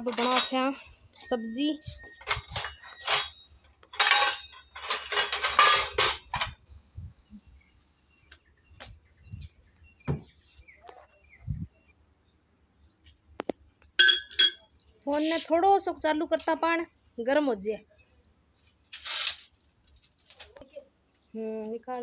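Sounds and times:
dishes and utensils clattering: 0.0s - 0.7s, 2.0s - 6.6s, 14.0s - 14.6s.

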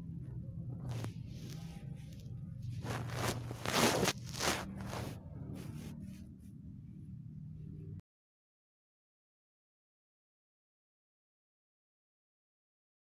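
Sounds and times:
steady low hum: 0.0s - 8.0s
hand rustling cat fur and bedding: 0.7s - 6.5s.

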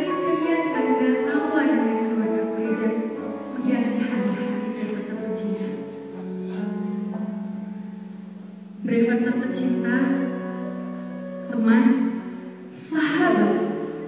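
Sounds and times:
background music with held notes: 0.0s - 14.0s.

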